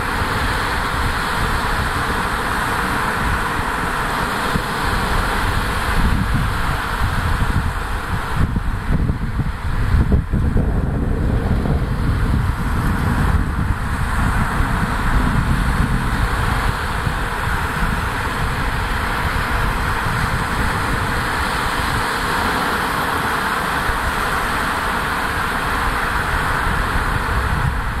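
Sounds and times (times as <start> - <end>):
choppy sea rushing: 0.0 - 28.0
wind buffeting microphone: 0.0 - 28.0.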